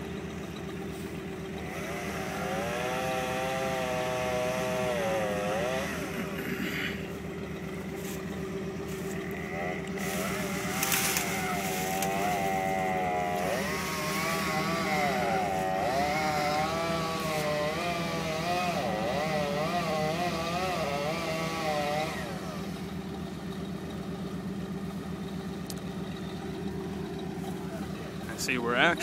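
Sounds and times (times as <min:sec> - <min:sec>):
engine idling: 0:00.0 - 0:29.0
chainsaw revving: 0:00.8 - 0:23.1.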